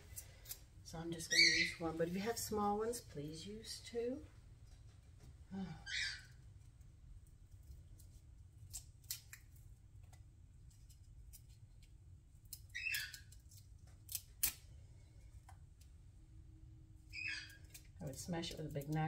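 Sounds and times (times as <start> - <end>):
knife peeling garlic skin: 0.0 - 0.7, 6.5 - 14.7, 17.1 - 19.0.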